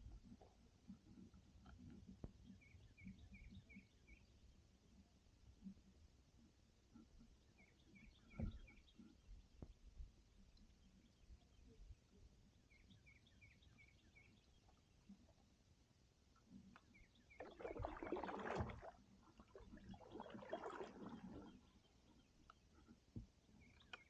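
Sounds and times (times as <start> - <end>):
water dripping from paddle: 16.7 - 21.7
kayak paddle strokes in water: 17.4 - 21.8
bird chirping: 23.4 - 24.0.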